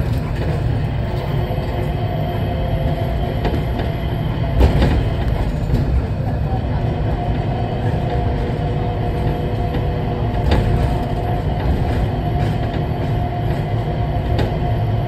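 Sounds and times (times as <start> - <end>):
train low rumble: 0.0 - 15.0.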